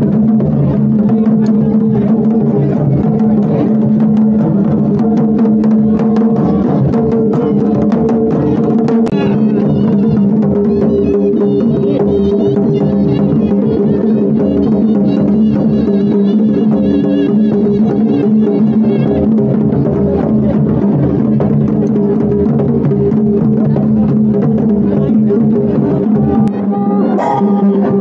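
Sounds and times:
dhol drums beating: 0.0 - 28.0
sustained wind instrument notes: 8.3 - 19.3, 26.0 - 28.0
wavering high melody: 26.5 - 28.0.

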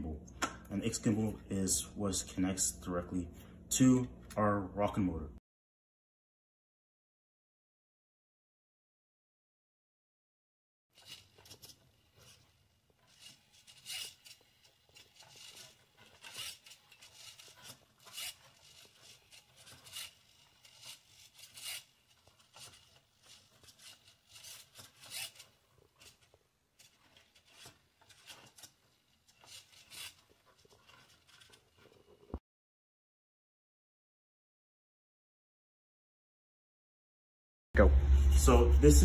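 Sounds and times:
small servo motors whirring: 11.0 - 31.7.

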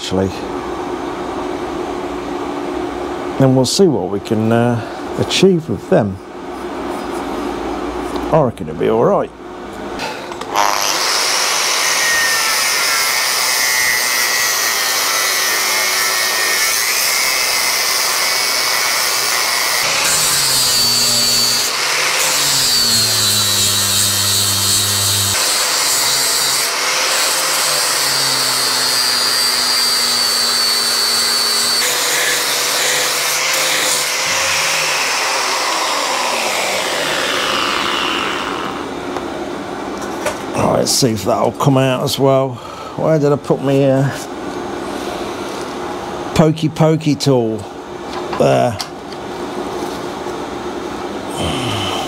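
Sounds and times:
angle grinder grinding metal: 10.5 - 38.9.

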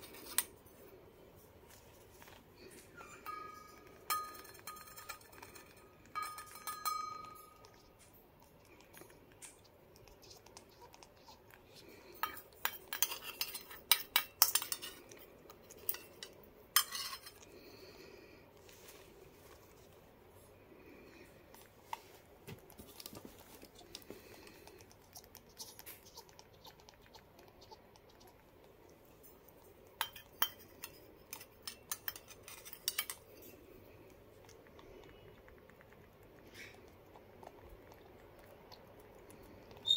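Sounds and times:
bird pecking metal spoon: 3.0 - 8.1, 12.2 - 17.5, 29.9 - 33.6.

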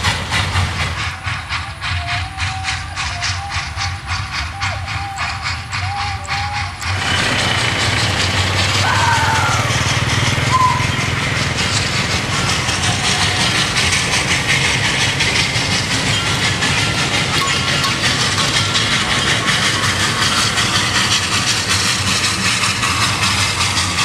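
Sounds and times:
vehicle engine rumbling: 3.8 - 24.0
road noise: 6.8 - 24.0.

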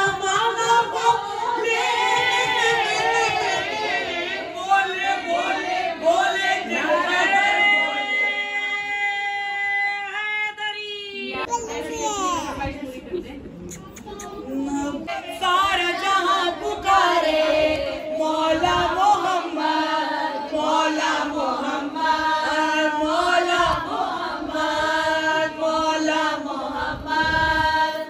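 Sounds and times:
women chanting together: 0.0 - 8.6, 14.5 - 28.0.

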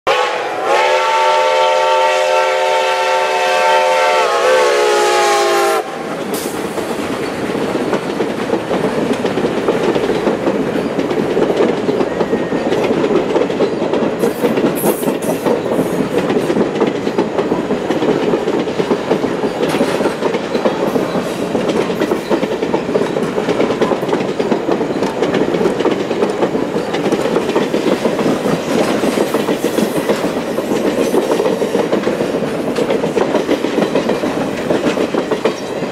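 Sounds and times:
steam locomotive chime whistle: 0.1 - 6.2, 12.0 - 12.8
train wheels clacking over rail joints: 5.8 - 35.9.

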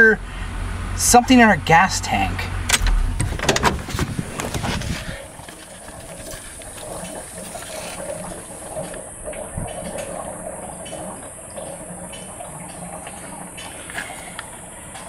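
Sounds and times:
fuel hissing and bubbling: 3.2 - 15.0.

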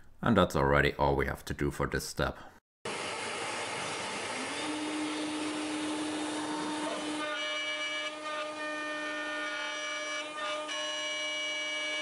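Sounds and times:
end mill cutting wood: 2.9 - 12.0
router spindle whining: 2.9 - 12.0.

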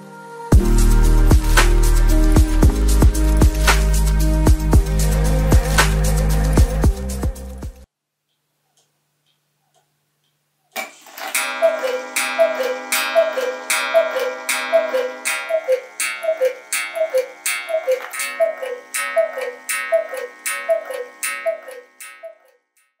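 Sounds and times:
clock chime strike: 11.4 - 22.5
cuckoo clock two-note call: 11.4 - 22.9.

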